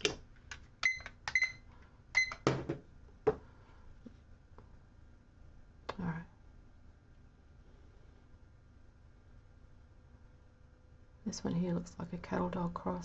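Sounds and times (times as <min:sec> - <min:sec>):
dull knock on desk: 0:02.4 - 0:03.4.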